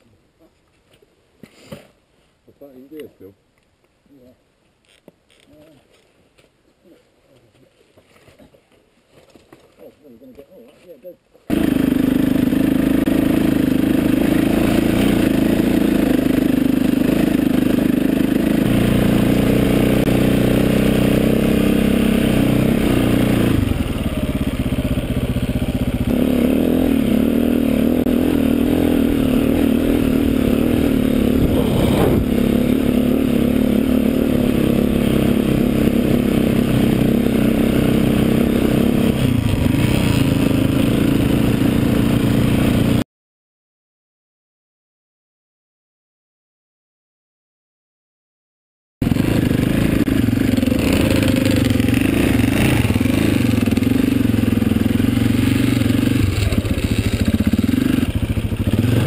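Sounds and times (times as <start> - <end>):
motorbike engine running: 11.5 - 43.0, 49.0 - 59.0.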